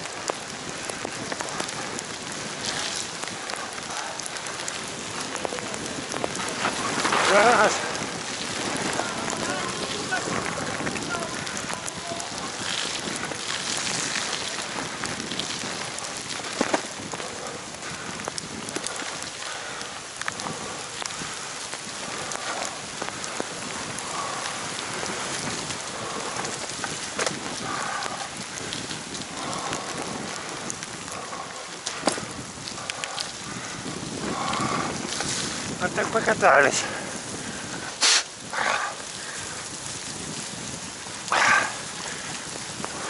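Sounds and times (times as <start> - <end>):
heavy rain pattering on microphone: 0.0 - 43.0
wheels rolling through water: 0.0 - 43.0.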